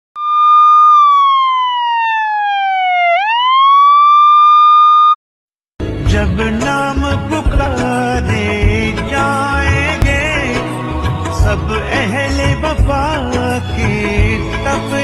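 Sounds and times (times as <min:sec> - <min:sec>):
police siren: 0:00.2 - 0:05.2
music: 0:05.8 - 0:15.0.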